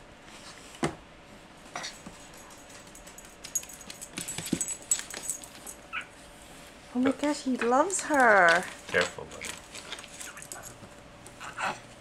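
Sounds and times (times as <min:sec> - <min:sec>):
high jingling and clicking: 0:02.3 - 0:06.0, 0:10.1 - 0:10.8.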